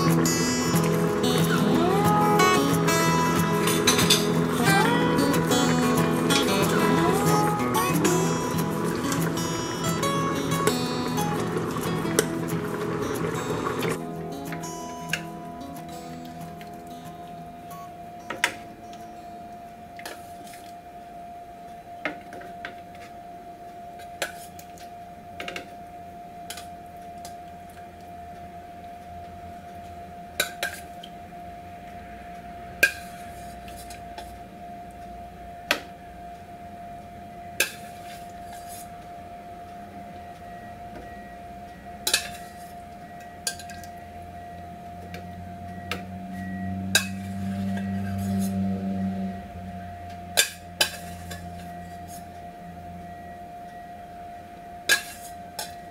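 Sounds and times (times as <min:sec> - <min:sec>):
low hum: 0:00.0 - 0:20.1, 0:42.8 - 0:54.7
faint steady hum: 0:00.0 - 0:55.9.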